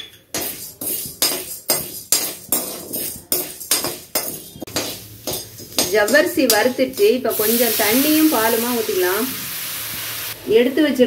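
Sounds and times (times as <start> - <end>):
pearls clinking against pan: 0.0 - 7.2
metal spatula scraping a pan: 0.1 - 8.6.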